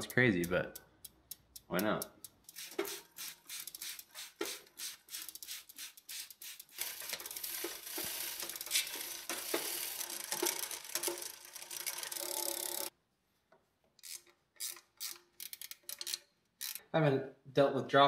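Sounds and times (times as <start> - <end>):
rag scrubbing bicycle chain: 1.3 - 12.9, 14.0 - 16.8
spray bottle squirting: 2.5 - 9.0.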